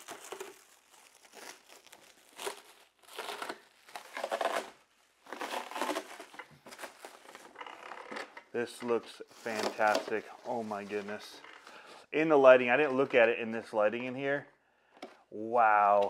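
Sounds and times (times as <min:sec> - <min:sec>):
plastic film crinkling and tearing: 0:00.0 - 0:11.6.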